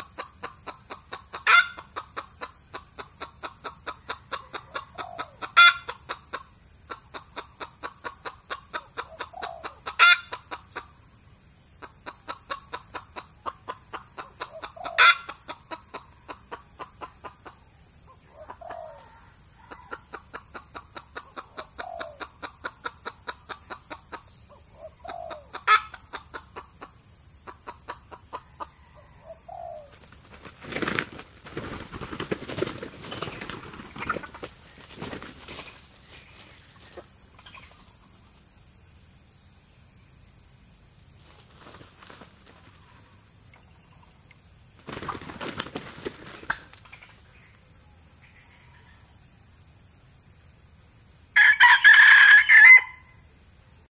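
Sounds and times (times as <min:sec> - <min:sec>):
roosters clucking: 0:00.0 - 0:38.5, 0:41.1 - 0:49.0
wing flapping: 0:29.9 - 0:37.1, 0:41.2 - 0:43.1, 0:44.8 - 0:46.9.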